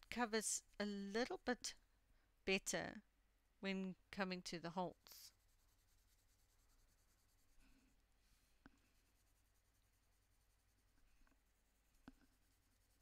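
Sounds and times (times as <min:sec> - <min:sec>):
pencil scratching on paper: 0:05.0 - 0:13.0.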